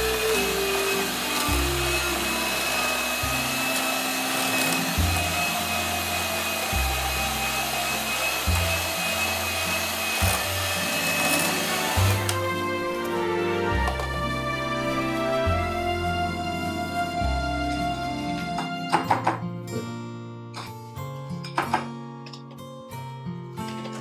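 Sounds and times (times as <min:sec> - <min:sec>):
kitchen appliance motor whining: 0:00.0 - 0:18.8.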